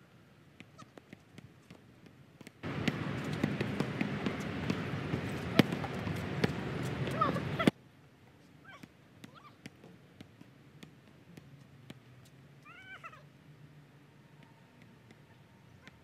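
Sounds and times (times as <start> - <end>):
basketball bouncing on hard court: 2.4 - 7.7.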